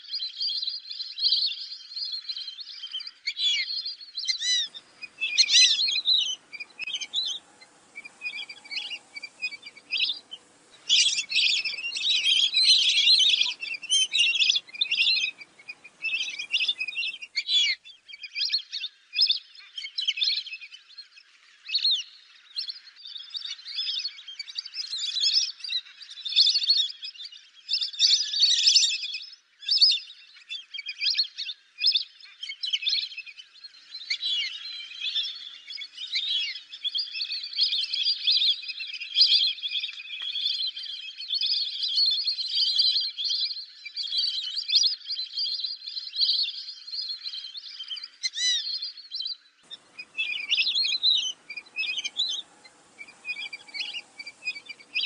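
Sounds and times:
ducks whistling calls: 4.3 - 17.8, 49.6 - 55.0.

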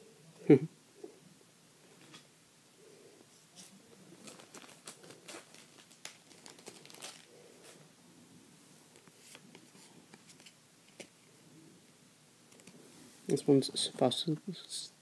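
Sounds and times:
foil wrapper crinkling: 3.6 - 7.8.

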